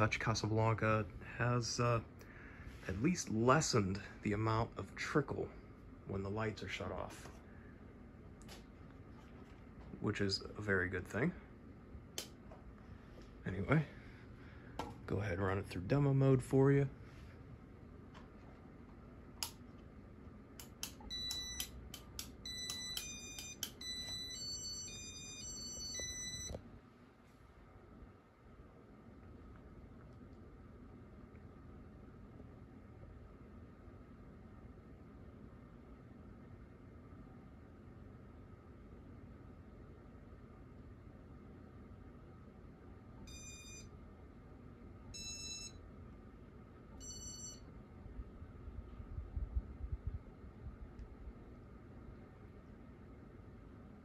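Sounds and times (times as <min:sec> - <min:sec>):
steady low rumble: 0:00.0 - 0:22.7, 0:47.8 - 0:54.0
clicks: 0:19.4 - 0:19.8, 0:20.6 - 0:24.2
ceiling fan control beeping: 0:20.6 - 0:26.6, 0:43.2 - 0:44.0, 0:45.1 - 0:45.9, 0:46.9 - 0:47.8
electronic tune of held tones: 0:22.4 - 0:26.6, 0:43.3 - 0:43.9, 0:45.2 - 0:45.8, 0:47.0 - 0:47.6
short electronic beeps: 0:43.3 - 0:43.9.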